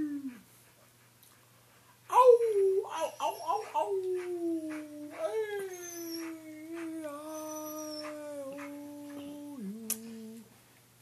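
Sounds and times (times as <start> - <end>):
husky howling: 2.8 - 9.6.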